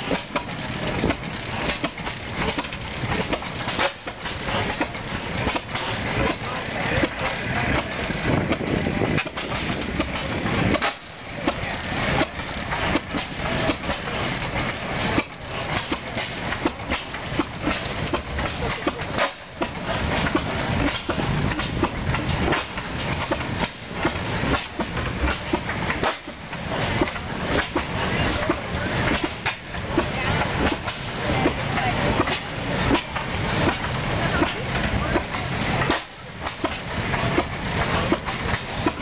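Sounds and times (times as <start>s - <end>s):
stationary gas engines clattering: 0.0s - 39.0s.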